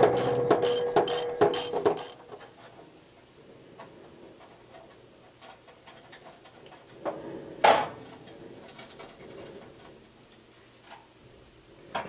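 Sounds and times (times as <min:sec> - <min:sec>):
knocks: 0:00.0 - 0:02.2.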